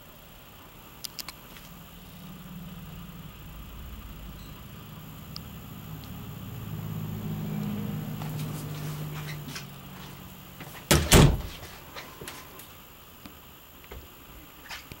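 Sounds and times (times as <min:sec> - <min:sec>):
steady low hum: 0:00.0 - 0:15.0
door shutting with heavy knocks: 0:10.9 - 0:11.6.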